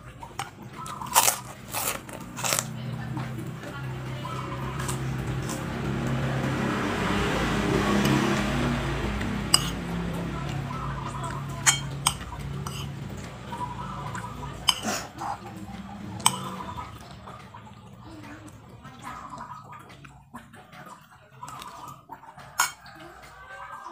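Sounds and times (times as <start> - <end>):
metal spoon scraping ceramic plate: 9.5 - 9.8, 11.6 - 13.0, 14.6 - 14.9, 22.6 - 22.8.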